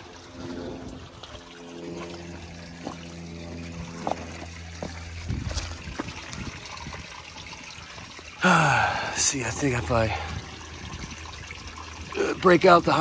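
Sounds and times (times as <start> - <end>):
water trickling among rocks: 0.0 - 13.0
footsteps on loose stones: 2.0 - 3.1, 3.9 - 6.2.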